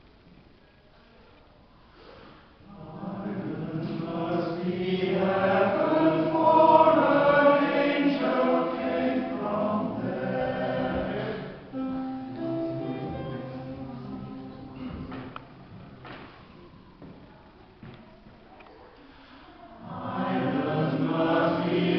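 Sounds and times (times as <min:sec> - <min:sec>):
mixed choir singing in harmony: 0:02.6 - 0:15.5, 0:19.8 - 0:21.9.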